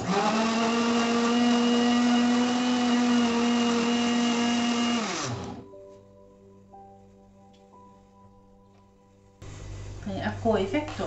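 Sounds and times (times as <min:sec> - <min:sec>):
electric mixer grinder running: 0:00.0 - 0:05.6
motor winding down: 0:00.0 - 0:05.6.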